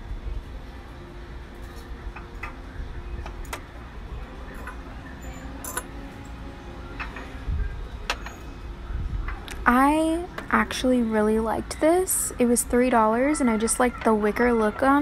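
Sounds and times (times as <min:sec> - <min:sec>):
glass dispensers clinking on shelves: 0:04.5 - 0:05.9.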